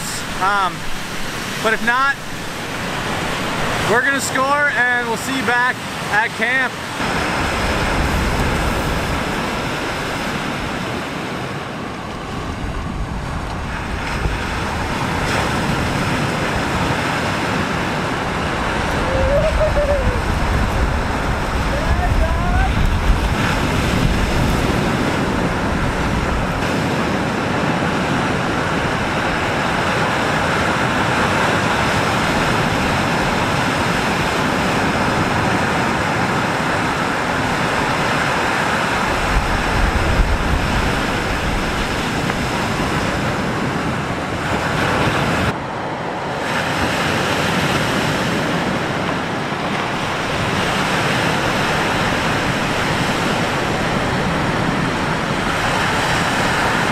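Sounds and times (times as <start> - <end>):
surf breaking: 0.0 - 45.6
wind buffeting microphone: 6.9 - 56.9.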